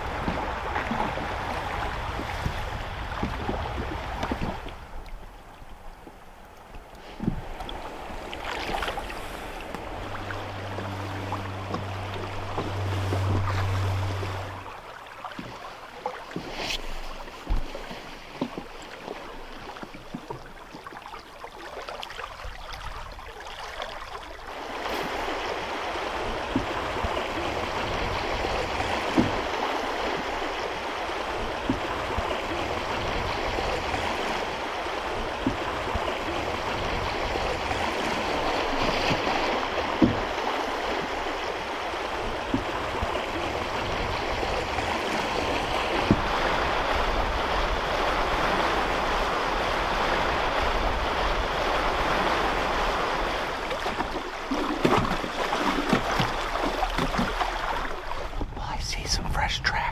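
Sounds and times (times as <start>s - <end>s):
river water flowing: 0.0s - 59.9s
low hum: 7.4s - 15.3s.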